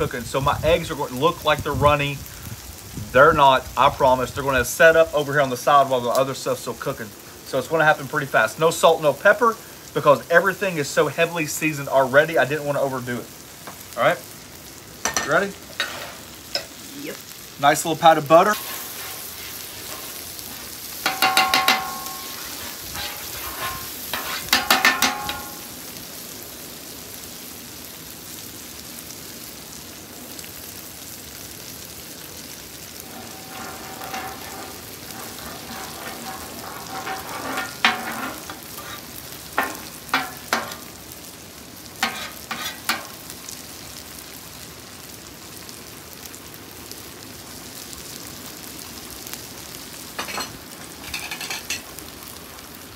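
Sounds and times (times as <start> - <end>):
butter sizzling on a griddle: 0.0 - 52.9
metal spatula scraping steel: 15.1 - 16.7, 18.5 - 25.7, 33.0 - 40.9, 42.0 - 43.2, 50.2 - 51.8
spatula taps: 21.0 - 22.3.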